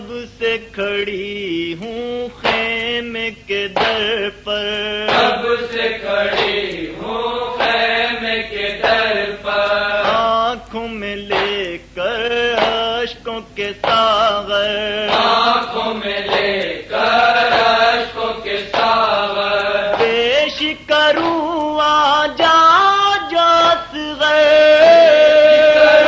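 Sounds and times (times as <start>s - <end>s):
man chanting a lament: 19.3s - 26.0s.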